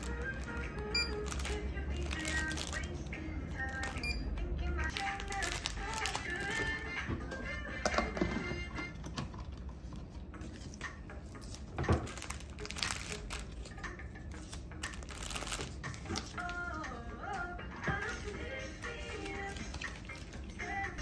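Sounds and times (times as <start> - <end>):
plastic bags crinkling: 0.0 - 3.0, 4.9 - 6.8, 11.5 - 13.8, 14.4 - 16.5.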